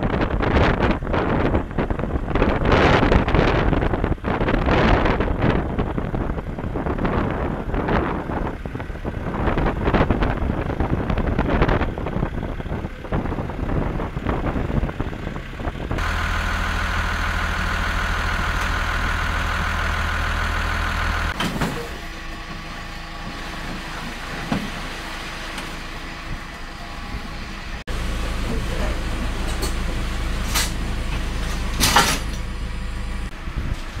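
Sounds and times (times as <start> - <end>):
wind buffeting microphone: 0.0 - 16.0, 33.2 - 34.0
diesel tractor engine running: 0.0 - 34.0
machine hum with whine: 15.9 - 34.0.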